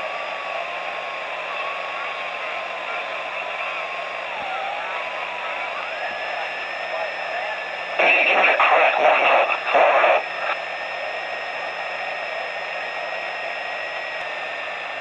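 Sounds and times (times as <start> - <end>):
garbled radio signal: 5.6 - 11.8
radio hiss: 5.8 - 11.8.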